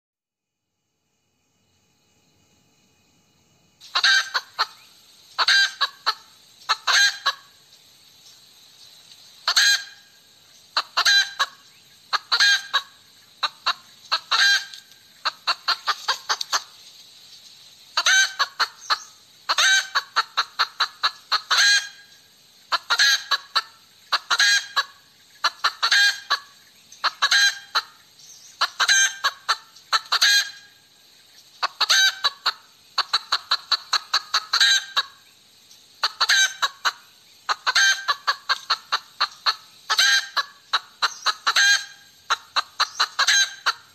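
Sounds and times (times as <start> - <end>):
hen cackling: 3.8 - 7.6, 9.4 - 10.2, 10.8 - 16.8, 18.0 - 30.8, 31.6 - 35.3, 36.0 - 43.9.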